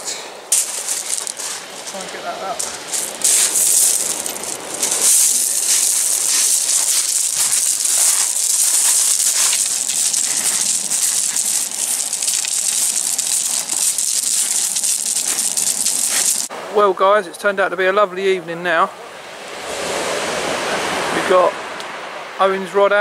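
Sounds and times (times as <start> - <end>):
pebbles crunching and rattling: 0.5 - 16.5.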